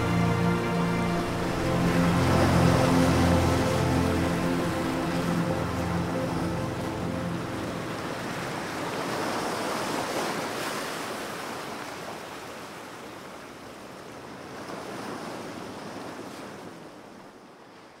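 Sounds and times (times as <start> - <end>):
ocean surf washing in: 0.0 - 11.6.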